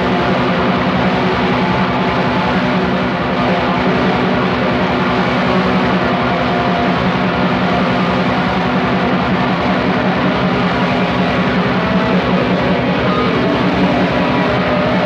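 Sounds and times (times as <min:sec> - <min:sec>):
distorted guitar and drums: 0:00.0 - 0:15.0.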